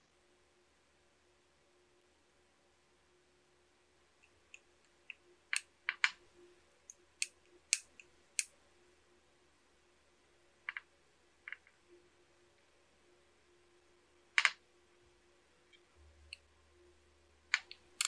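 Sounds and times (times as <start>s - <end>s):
screwdriver clicks and taps: 6.9s - 8.5s.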